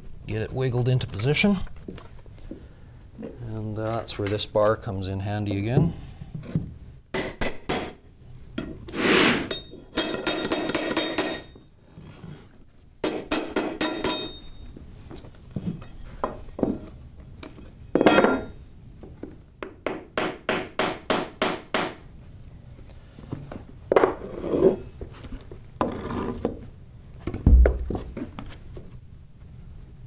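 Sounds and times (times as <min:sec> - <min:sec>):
panels scraping: 0:24.1 - 0:26.7
heavy low thump: 0:27.4 - 0:28.2.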